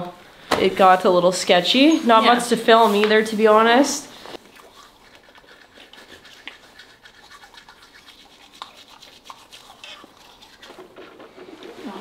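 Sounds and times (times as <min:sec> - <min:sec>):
toothbrush scrubbing teeth: 0:04.4 - 0:12.0.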